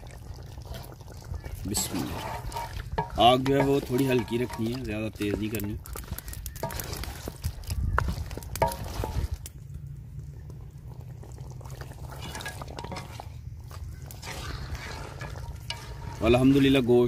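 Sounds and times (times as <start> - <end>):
stew simmering in pot: 0.0 - 17.0
spoon clinking and scraping pot: 1.7 - 5.6, 6.6 - 7.2, 8.6 - 9.4, 12.0 - 13.3, 13.9 - 16.9.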